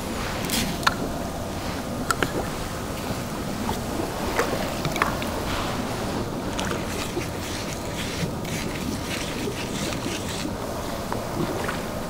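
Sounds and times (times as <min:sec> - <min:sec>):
steady background hiss: 0:00.0 - 0:12.0
wet crumbs worked by hand: 0:06.3 - 0:12.0.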